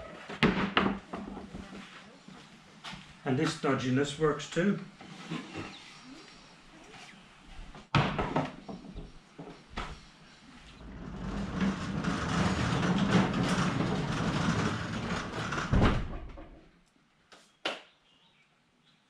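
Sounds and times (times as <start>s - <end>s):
table rolling on concrete floor: 10.6s - 16.7s.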